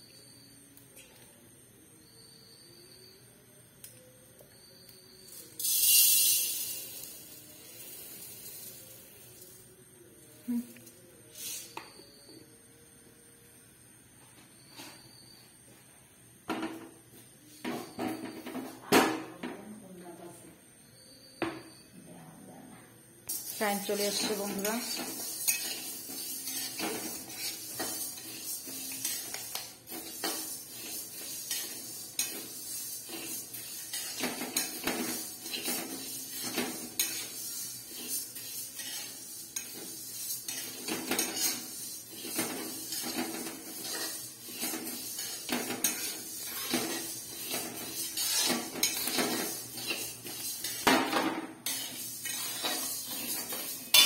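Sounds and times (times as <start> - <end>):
lentils rattling in pan: 5.6 - 9.1, 23.3 - 54.0
metal spatula scraping pan: 23.3 - 54.0.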